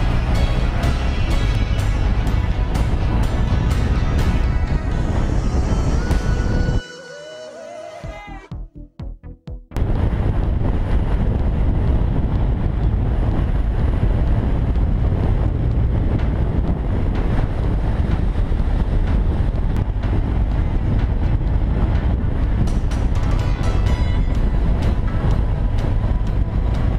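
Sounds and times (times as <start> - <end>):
motorcycle engine running: 0.0 - 6.7
wind buffeting microphone: 0.0 - 6.8, 9.8 - 26.9.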